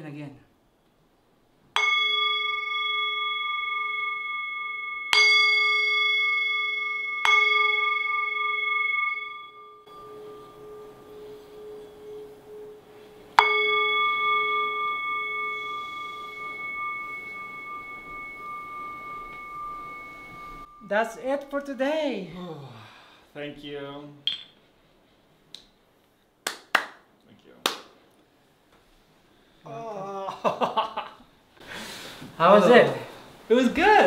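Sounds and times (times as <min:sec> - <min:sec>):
singing bowl ringing: 0:01.8 - 0:22.4.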